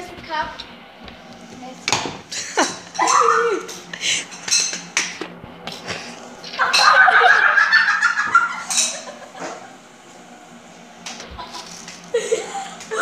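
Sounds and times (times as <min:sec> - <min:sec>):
giggling laughter: 0:06.6 - 0:09.8, 0:11.4 - 0:13.0.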